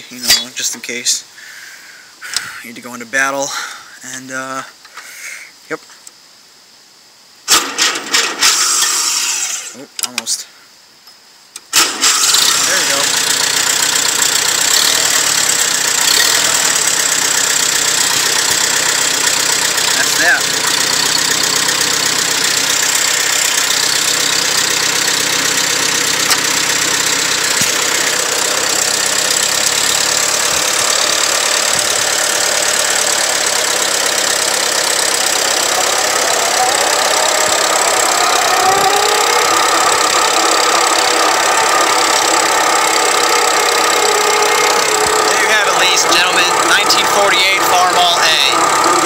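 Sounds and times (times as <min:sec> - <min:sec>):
tractor engine running: 0:11.7 - 0:49.0.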